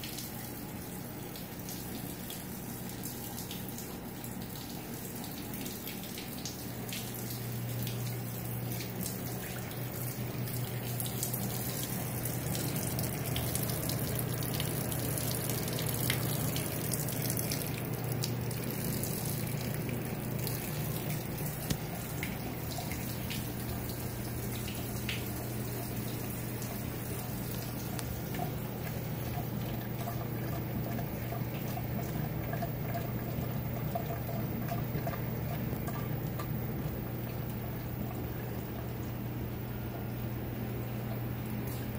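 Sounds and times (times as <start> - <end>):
water running and splashing: 0.0 - 39.2
low machine hum: 0.0 - 41.9.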